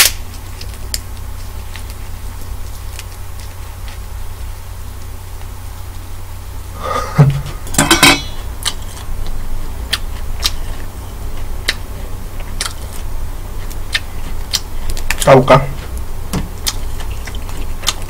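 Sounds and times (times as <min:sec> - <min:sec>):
prawn shell crackling and snapping: 0:00.0 - 0:04.1, 0:08.4 - 0:18.0
low steady hum: 0:00.0 - 0:18.0.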